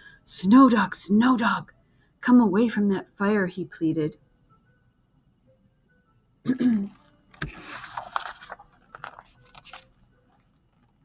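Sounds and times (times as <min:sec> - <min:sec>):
book pages turning: 0:07.0 - 0:11.0.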